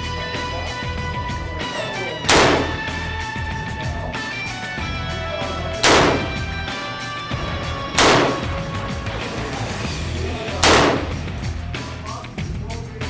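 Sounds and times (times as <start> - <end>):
rifle shots: 2.2 - 3.0, 5.8 - 6.5, 7.9 - 8.6, 10.6 - 11.2.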